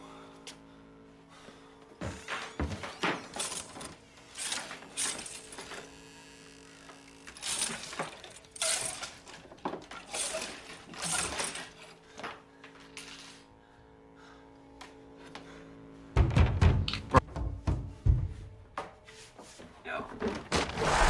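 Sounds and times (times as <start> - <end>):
faint low drone: 0.0 - 7.4, 11.4 - 17.2
clothes and hangers rustling: 7.4 - 13.3.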